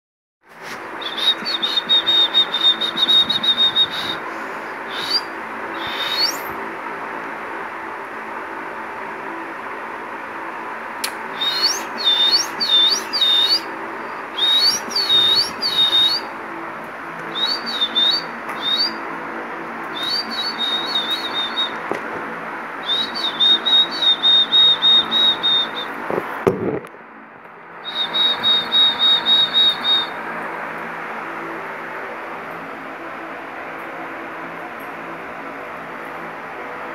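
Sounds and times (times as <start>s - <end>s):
cockatiel whistling: 1.0s - 4.2s, 4.9s - 6.6s, 11.4s - 13.7s, 14.3s - 16.3s, 17.3s - 19.0s, 19.9s - 21.8s, 22.8s - 26.0s, 27.8s - 30.2s.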